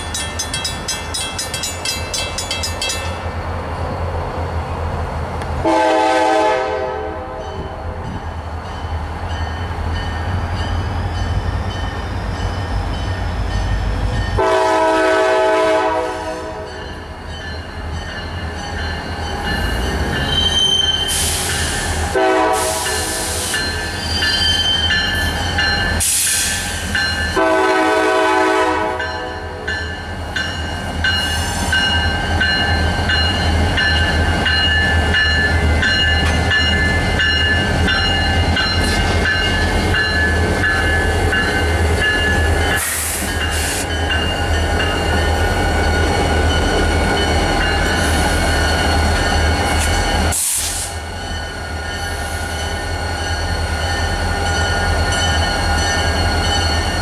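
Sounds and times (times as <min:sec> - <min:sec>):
passing train rumble: 0:00.0 - 0:57.0
train air horn blasts: 0:05.6 - 0:07.8, 0:14.3 - 0:16.8, 0:21.0 - 0:23.7, 0:27.3 - 0:29.7
wheels squealing: 0:19.6 - 0:21.9.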